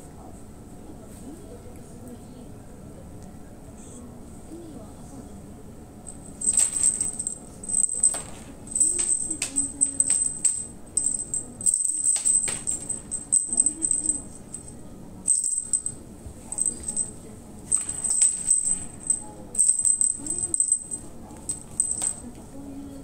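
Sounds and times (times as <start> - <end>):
cat toy jingling and rattling: 6.1 - 22.3.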